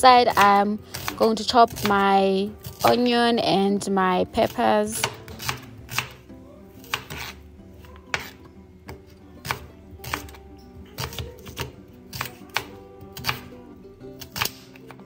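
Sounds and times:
soft background music: 0.0 - 15.0
knife chopping on cutting board: 0.3 - 2.0, 5.0 - 6.2, 6.8 - 13.5, 14.2 - 15.0.

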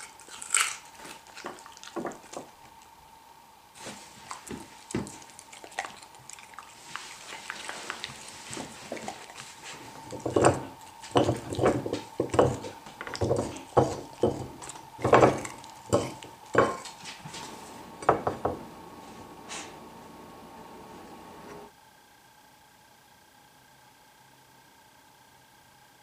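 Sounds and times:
dog crunching carrots: 0.0 - 3.0, 3.8 - 17.6
teeth knocking on china plate: 10.1 - 16.9.

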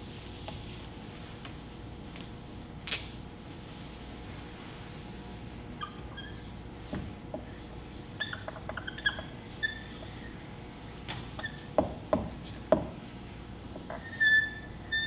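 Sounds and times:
marker squeaking on whiteboard: 5.8 - 6.5, 8.2 - 10.3, 11.4 - 11.7, 13.9 - 15.0.

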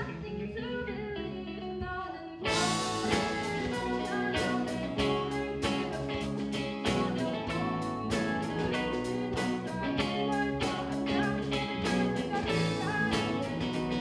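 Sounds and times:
bass guitar: 0.0 - 14.0
electric guitars: 0.0 - 14.0
drum kit: 2.5 - 14.0.

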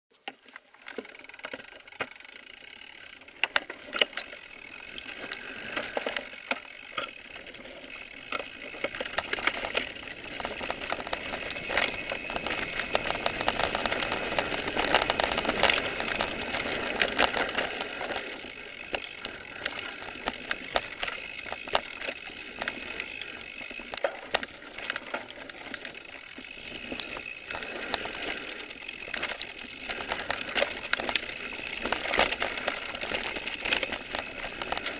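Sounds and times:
bike tyres on dirt trail: 0.1 - 34.9
bike rattling over bumps: 0.4 - 34.9.

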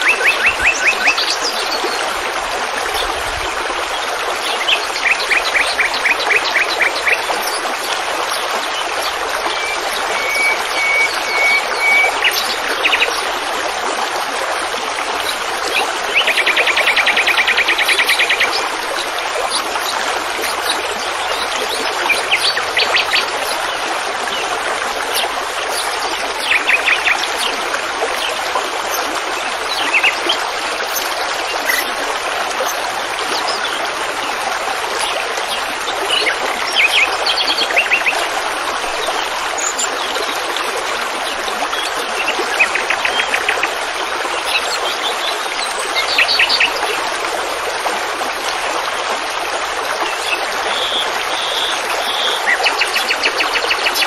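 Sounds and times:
stream water rushing: 0.0 - 54.0
small birds chirping: 4.1 - 13.2, 15.1 - 32.0, 50.3 - 54.0.

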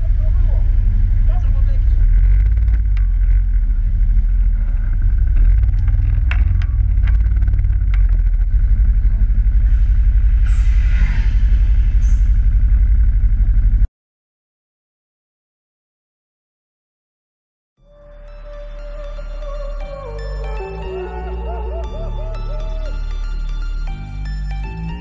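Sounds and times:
quad engine idling: 0.0 - 10.4, 18.2 - 25.0.

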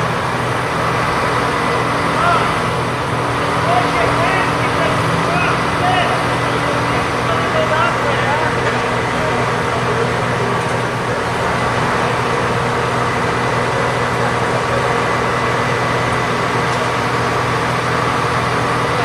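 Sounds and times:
crane engine humming: 0.0 - 19.0
street noise: 0.0 - 19.0.

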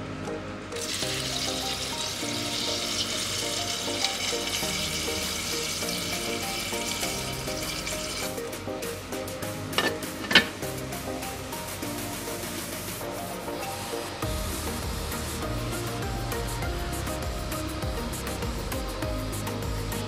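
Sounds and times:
soft background music: 0.0 - 20.0
water pouring into metal pot: 0.8 - 8.4.

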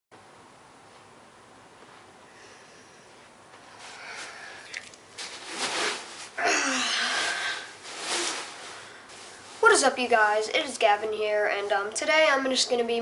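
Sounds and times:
bean bag rustling: 3.8 - 10.2.

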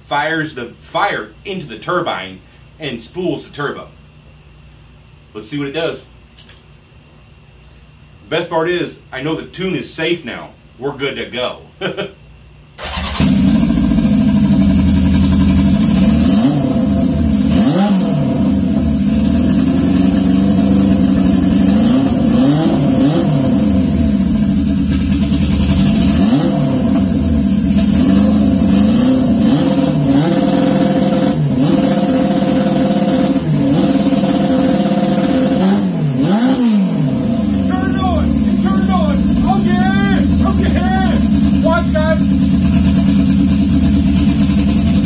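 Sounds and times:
motorcycle engine at high revs: 12.8 - 45.0.

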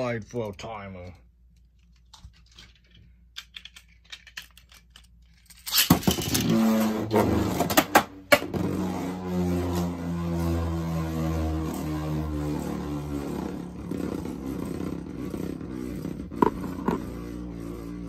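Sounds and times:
spinning top whirring: 9.8 - 18.0.

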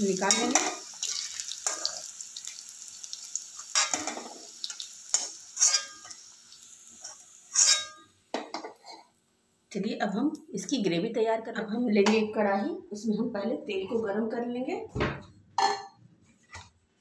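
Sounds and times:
potatoes sizzling in oil: 0.0 - 8.8
metal ladle scraping a pan: 5.1 - 6.2, 7.0 - 9.0.

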